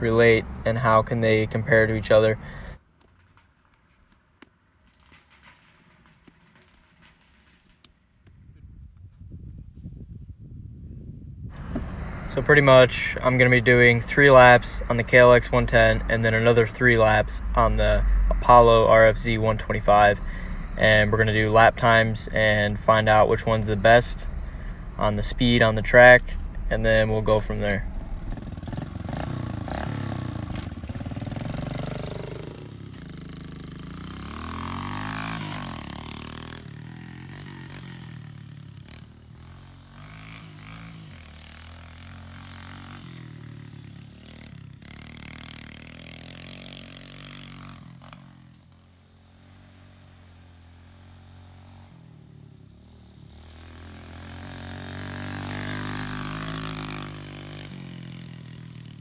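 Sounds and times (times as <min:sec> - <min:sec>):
dirt bike engine revving: 0:00.0 - 0:02.8, 0:11.5 - 0:59.0.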